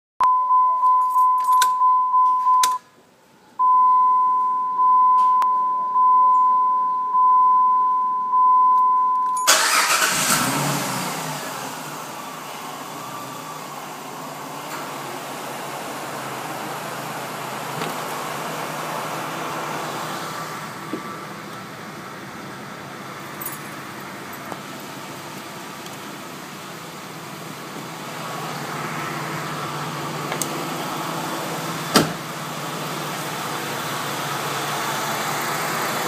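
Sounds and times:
dashboard warning chime beeping: 0:00.2 - 0:02.8, 0:03.6 - 0:10.0
car engine starting and idling: 0:09.1 - 0:36.0.

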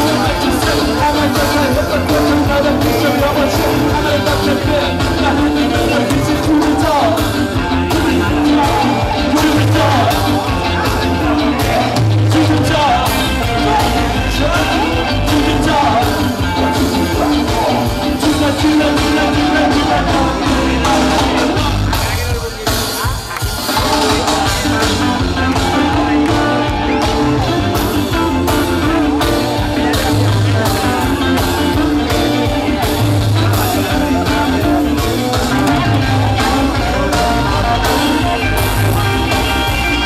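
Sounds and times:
person singing lead vocal: 0:00.0 - 0:40.0
ska band playing live: 0:00.0 - 0:40.0.

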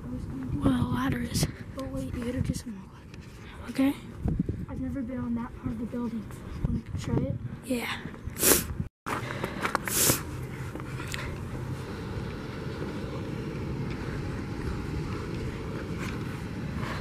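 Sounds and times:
hvac units and fans humming: 0:09.1 - 0:17.0.

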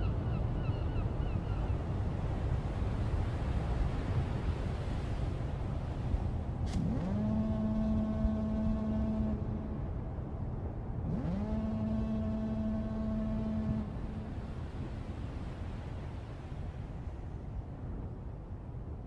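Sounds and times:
low horn-like tones: 0:06.8 - 0:10.0, 0:11.1 - 0:14.6.

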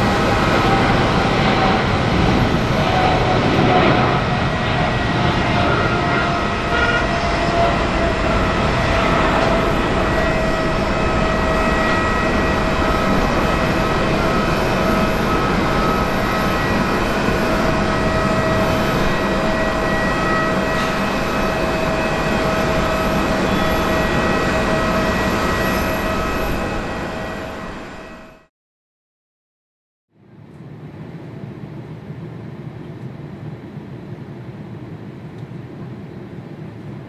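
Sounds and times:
jet engines running: 0:00.0 - 0:28.5.

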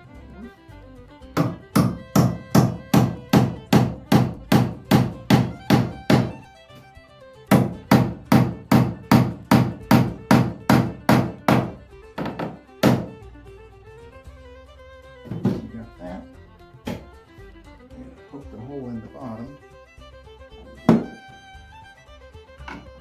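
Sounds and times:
hammer driving nails: 0:01.4 - 0:06.4, 0:07.5 - 0:13.2, 0:20.9 - 0:21.2.

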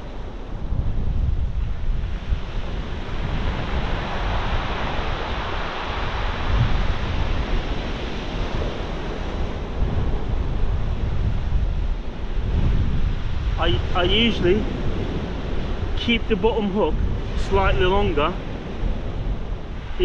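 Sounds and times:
wind rumbling on microphone: 0:00.0 - 0:20.0.

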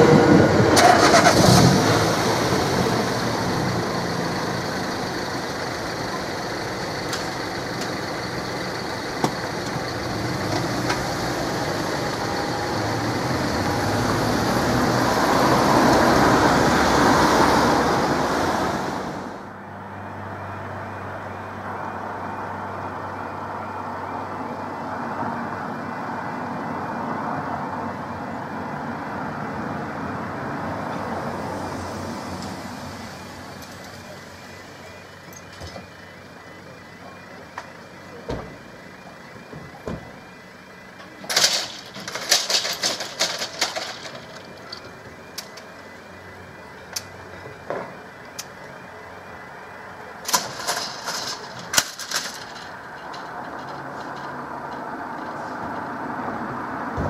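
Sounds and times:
road traffic rumble: 0:00.0 - 0:57.0
level crossing alarm: 0:32.8 - 0:42.7.

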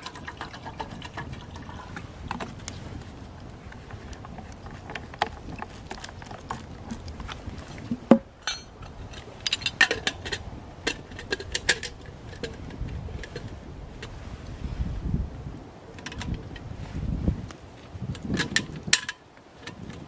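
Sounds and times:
campfire crackling and popping: 0:00.0 - 0:14.2, 0:17.4 - 0:20.0
metal clinks and knocks: 0:07.9 - 0:13.5.

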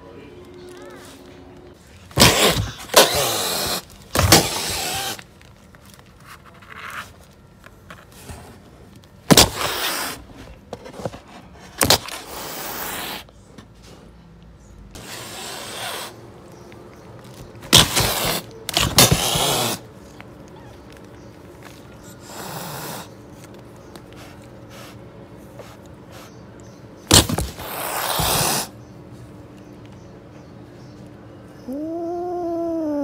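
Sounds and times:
cat hissing and spitting: 0:15.0 - 0:16.2, 0:22.2 - 0:23.2, 0:27.6 - 0:28.8.

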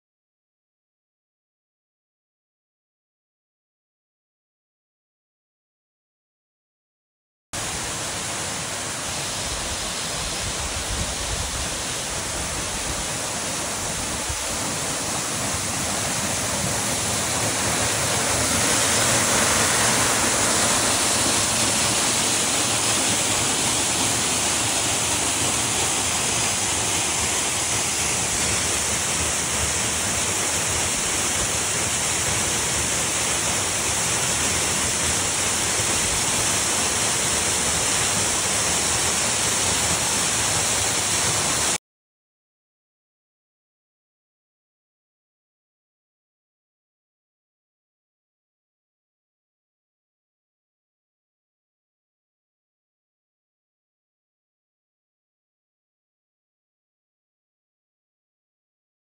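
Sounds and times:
waterfall rushing and splashing: 0:07.6 - 0:41.8.

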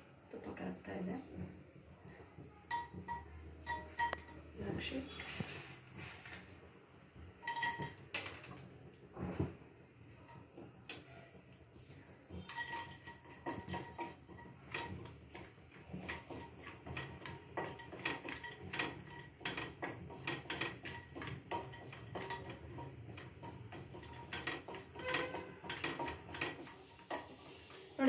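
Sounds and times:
spatula knocking and scraping pot: 0:02.4 - 0:06.1, 0:07.4 - 0:28.0
cashews frying: 0:09.9 - 0:28.0.

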